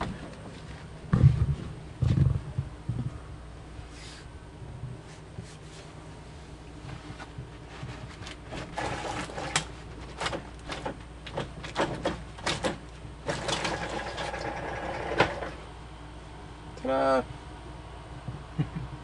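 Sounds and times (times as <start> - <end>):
steady low hum: 0.0 - 19.0
knocks and clicks in truck cab: 9.6 - 13.7.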